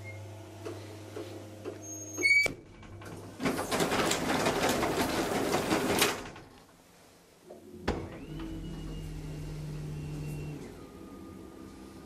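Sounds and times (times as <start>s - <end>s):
elevator hum: 7.6s - 12.0s.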